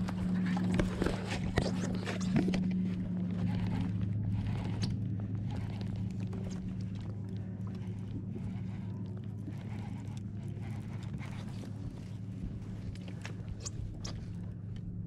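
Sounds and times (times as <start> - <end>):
steady low hum: 0.0 - 15.0
fishing reel cranking: 3.4 - 12.1.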